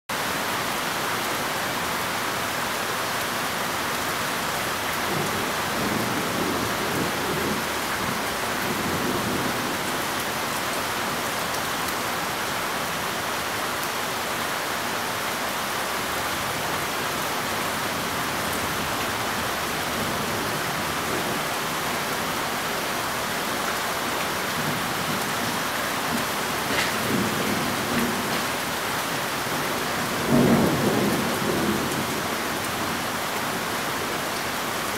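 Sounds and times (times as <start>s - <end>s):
steady rain: 0.1s - 34.9s
thunder rumbling: 5.1s - 10.1s, 24.5s - 33.0s.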